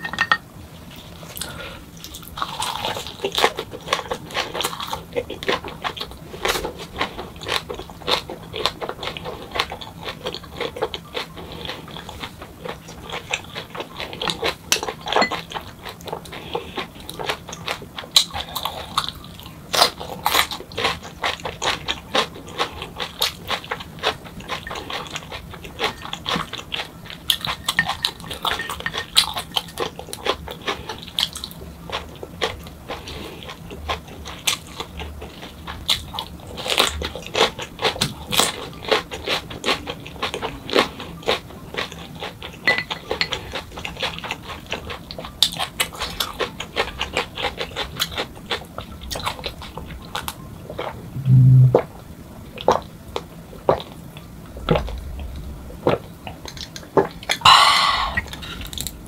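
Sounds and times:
wet chewing mouth sounds: 0:01.3 - 0:51.8, 0:53.6 - 0:58.8
chopsticks clinking against bowl: 0:14.8 - 0:15.4.

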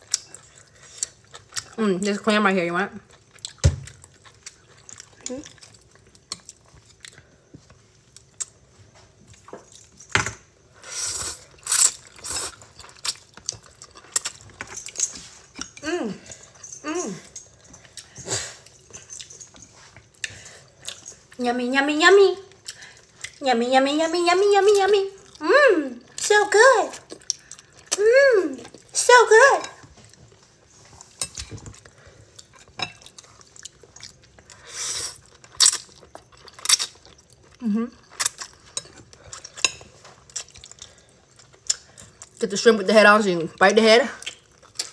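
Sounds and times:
chewing: 0:00.0 - 0:01.8, 0:03.0 - 0:08.6, 0:11.4 - 0:21.4, 0:22.5 - 0:23.4, 0:25.2 - 0:25.4, 0:26.9 - 0:28.0, 0:29.8 - 0:42.4, 0:44.1 - 0:44.9.

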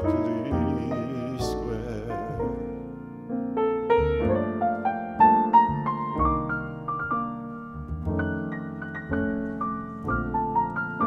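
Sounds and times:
jazz piano solo: 0:00.0 - 0:11.0
upright bass playing: 0:03.6 - 0:10.7.

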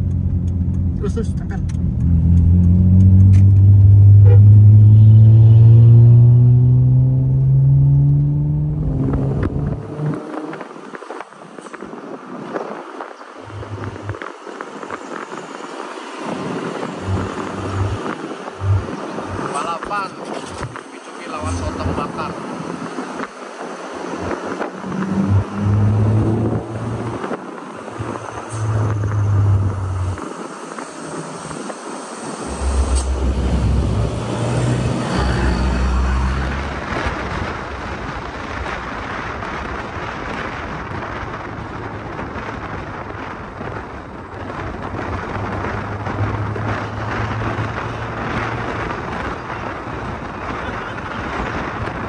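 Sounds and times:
car engine and road noise: 0:00.0 - 0:52.0
low hum: 0:32.4 - 0:36.0.

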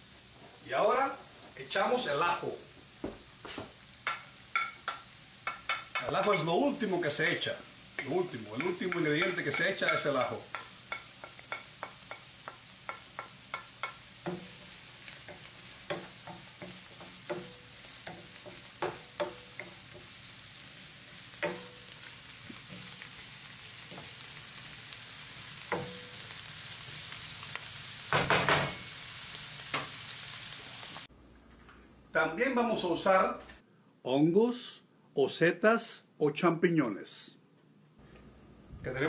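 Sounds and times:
onions sizzling in oil: 0:00.0 - 0:31.1
wooden spoon tapping and scraping pan: 0:03.5 - 0:06.5, 0:07.9 - 0:20.2, 0:21.2 - 0:23.1, 0:23.8 - 0:24.2, 0:25.7 - 0:26.3.

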